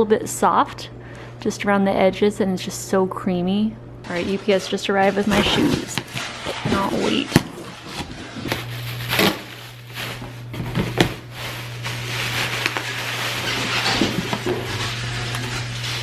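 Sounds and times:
steady low hum: 0.0s - 16.0s
packing material rustling: 4.2s - 16.0s.

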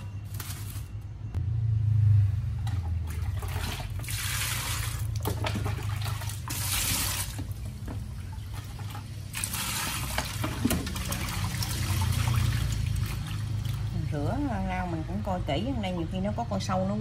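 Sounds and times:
low hum: 0.0s - 3.5s
water splashing into steel bowl: 2.6s - 14.0s.

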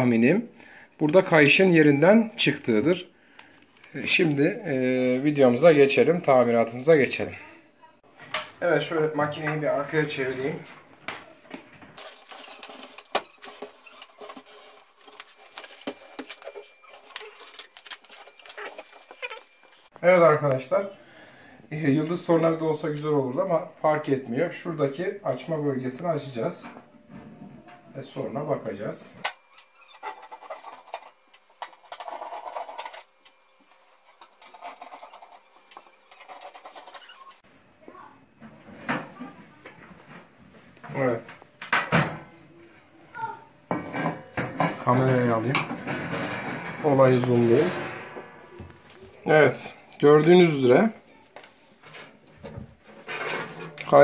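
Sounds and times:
rustling: 11.8s - 19.9s.

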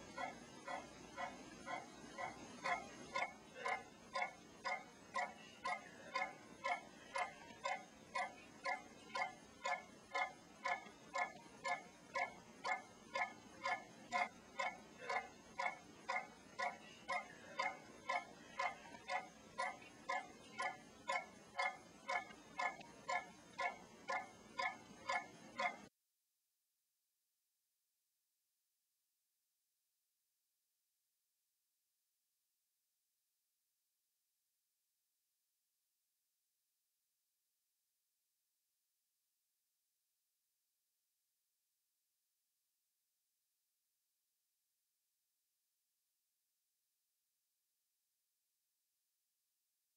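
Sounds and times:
steady ticking: 0.0s - 25.9s.

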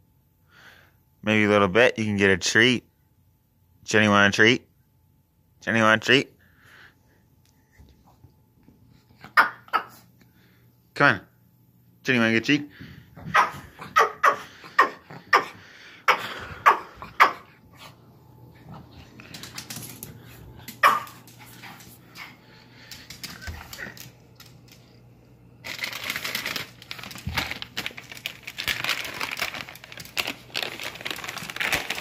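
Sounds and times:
small dog yapping: 9.3s - 10.0s, 13.2s - 17.5s, 20.8s - 21.2s
plastic bag crinkling: 25.6s - 32.0s.

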